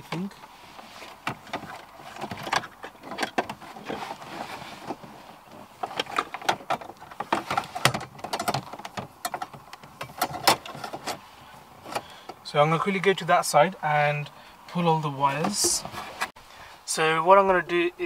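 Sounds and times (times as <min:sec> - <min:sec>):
plastic knocks clicks and scraping: 0:01.0 - 0:11.2.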